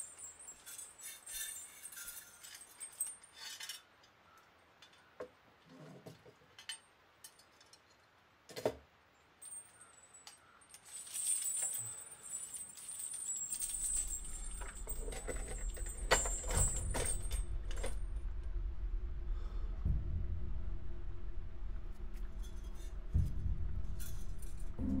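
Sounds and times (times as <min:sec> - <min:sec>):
small bells jingling: 0:00.0 - 0:03.8, 0:09.4 - 0:18.0
low rumble: 0:13.6 - 0:25.0.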